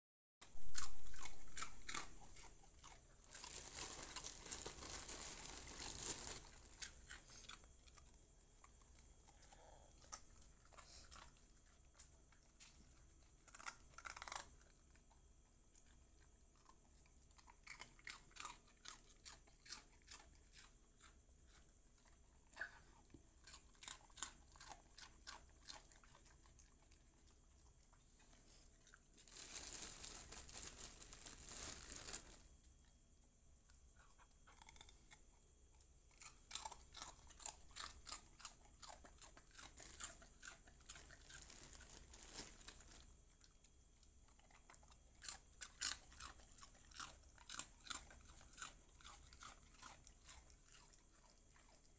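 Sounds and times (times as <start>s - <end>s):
dogs crunching and chewing: 0.4s - 32.4s, 34.4s - 51.9s
crackles and clicks: 35.8s - 50.0s.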